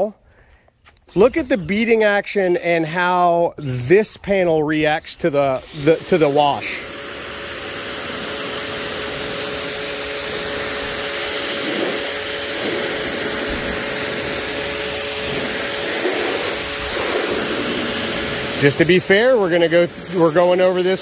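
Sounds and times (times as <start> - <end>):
pressure washer hum: 1.1 - 21.0
pressure washer spraying: 5.3 - 21.0.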